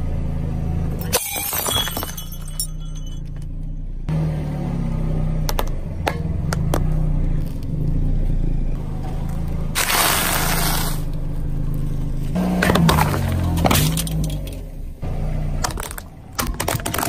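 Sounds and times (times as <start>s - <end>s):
car engine hum: 0.0s - 17.0s
drinking glass breaking: 1.1s - 3.4s.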